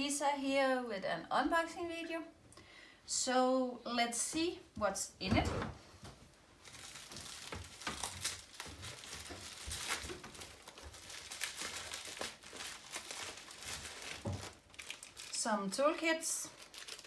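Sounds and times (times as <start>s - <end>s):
plastic wrapping crinkling: 6.4s - 17.0s.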